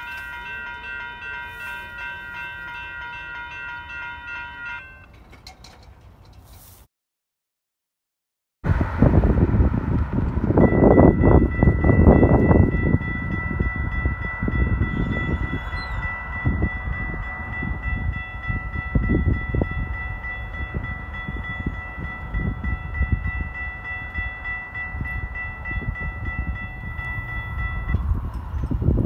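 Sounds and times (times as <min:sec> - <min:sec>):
railroad crossing bell ringing: 0:00.0 - 0:05.9, 0:10.4 - 0:29.0.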